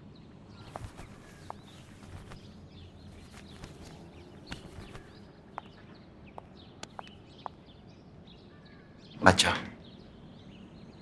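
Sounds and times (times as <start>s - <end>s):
faint birds chirping: 0.0s - 11.0s
blanket rustling and clicking: 0.5s - 5.8s.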